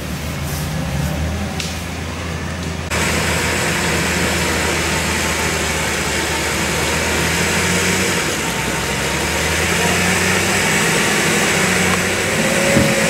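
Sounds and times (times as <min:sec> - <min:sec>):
engine humming: 0:00.0 - 0:13.0
strong hiss: 0:02.9 - 0:13.0.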